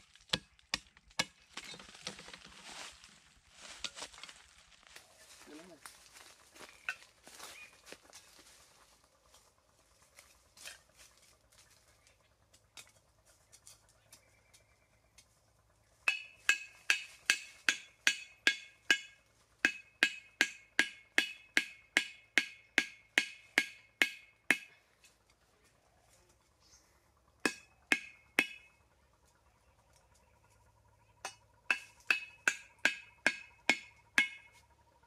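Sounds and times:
hammering bamboo stake: 0.2 - 2.4, 16.0 - 24.8, 27.4 - 28.7, 31.2 - 34.6.

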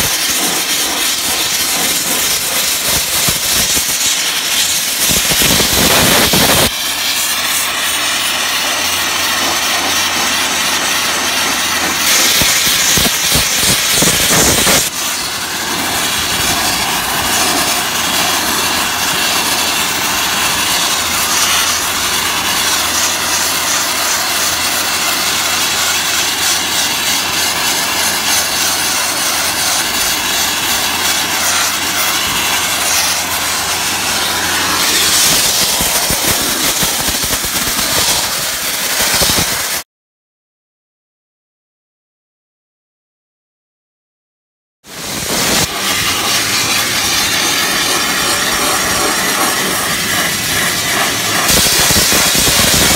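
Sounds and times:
abrasive blaster nozzle hissing: 0.0 - 39.8, 44.9 - 52.9
low hum: 5.6 - 38.6.

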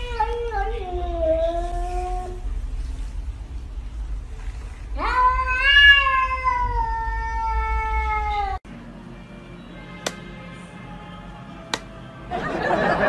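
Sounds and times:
cat meowing: 5.0 - 8.6.

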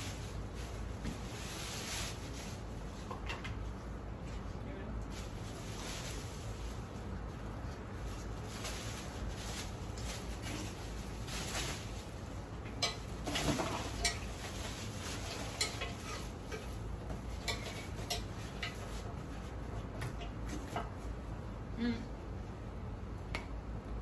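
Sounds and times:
plastic packaging rustling: 0.0 - 3.2, 5.0 - 20.0.

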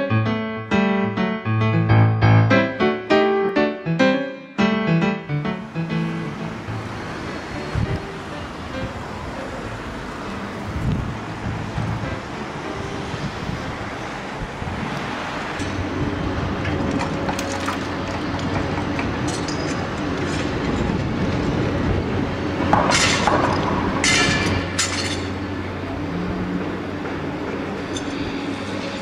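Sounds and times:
harsh metallic clatter: 15.4 - 25.5.

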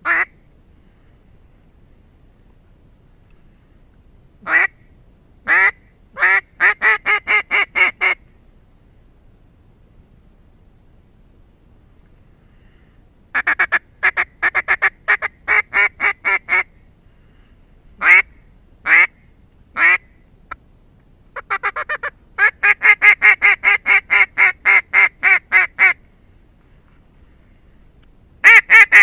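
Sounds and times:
duck quacking: 5.5 - 8.2, 21.4 - 26.0, 28.4 - 29.0.

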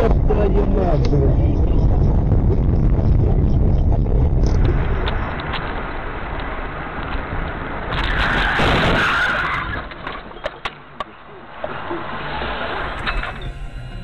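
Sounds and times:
road and engine rumble: 0.0 - 14.0
tyres skidding: 4.6 - 14.0.

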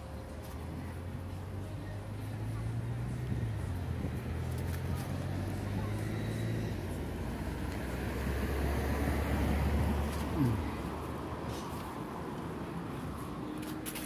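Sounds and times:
traffic engine hum: 0.0 - 14.0
vehicle passing by: 1.8 - 13.4.

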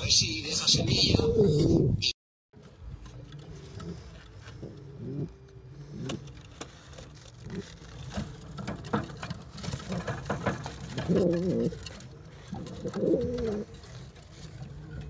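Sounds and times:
pigeon cooing: 0.6 - 2.1, 3.3 - 6.4, 11.0 - 11.9, 12.5 - 13.8
pigeons shuffling in a nest box: 2.7 - 15.0.

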